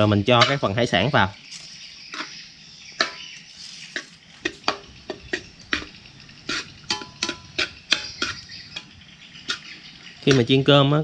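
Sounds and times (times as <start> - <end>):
metal spoon scraping wok: 0.0 - 10.5
rice sizzling: 0.0 - 11.0.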